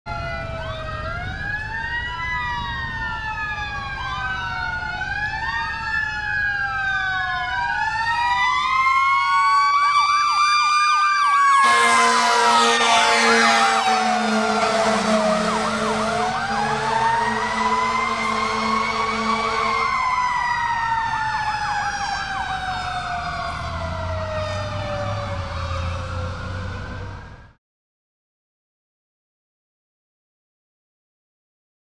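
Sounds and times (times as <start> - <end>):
siren wailing: 0.1 - 27.6
loud air horn: 11.5 - 20.2.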